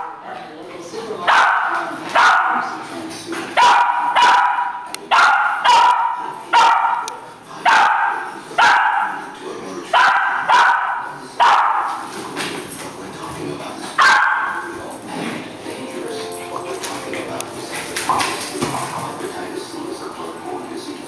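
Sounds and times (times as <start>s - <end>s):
dog barking: 0.0s - 0.4s, 1.2s - 2.8s, 3.6s - 9.3s, 9.9s - 12.1s, 14.0s - 14.7s.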